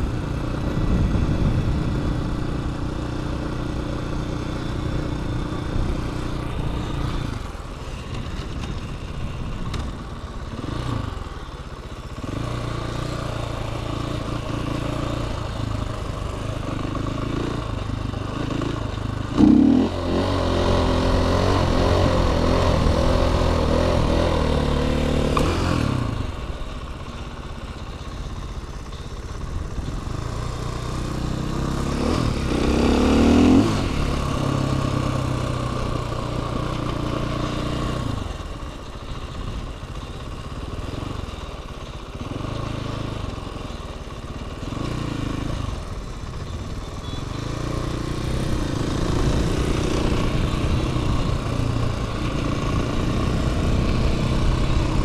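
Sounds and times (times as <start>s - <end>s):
dirt bike engine revving: 18.3s - 26.4s, 30.3s - 38.0s, 46.8s - 55.0s.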